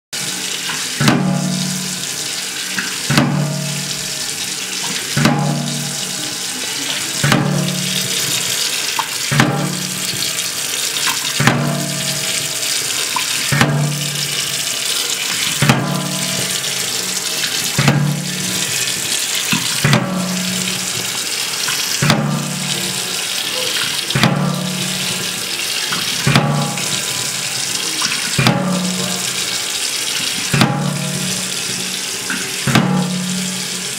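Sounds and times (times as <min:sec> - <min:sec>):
tap water running onto metal tray: 0:00.2 - 0:33.9
tray knocking against sink: 0:07.1 - 0:08.4, 0:09.3 - 0:10.3, 0:17.5 - 0:20.8, 0:32.3 - 0:33.5.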